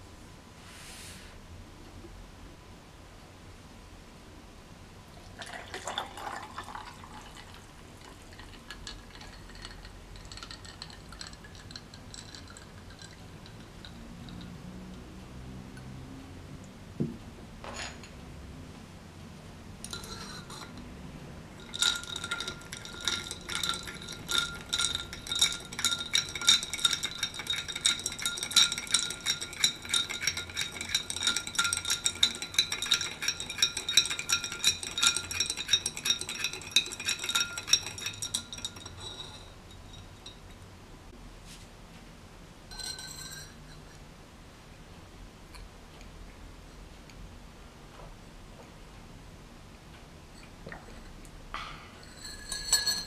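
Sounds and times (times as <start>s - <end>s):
metal stirrer clinking in glass: 8.3s - 14.6s, 19.8s - 20.8s, 21.6s - 40.6s, 42.7s - 44.0s, 52.0s - 53.0s.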